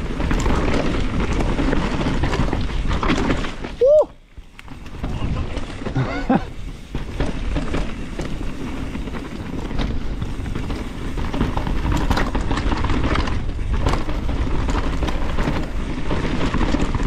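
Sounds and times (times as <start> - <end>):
bike knocking and rattling: 0.0 - 17.0
tyres rumbling on trail: 0.0 - 17.0.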